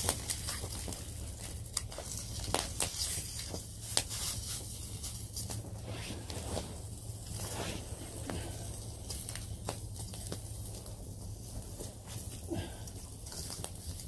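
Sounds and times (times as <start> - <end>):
bacon frying: 0.0 - 5.6, 8.4 - 14.0
steady low hum: 0.0 - 14.0
wood fire crackling: 0.0 - 14.0.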